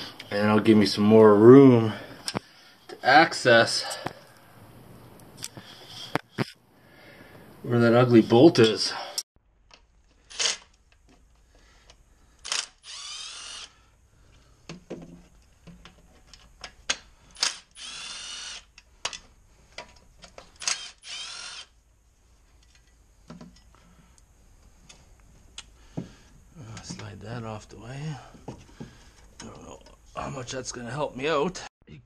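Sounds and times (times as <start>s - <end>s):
impact wrench bursts: 12.4s - 13.8s, 17.4s - 18.7s, 20.6s - 21.8s.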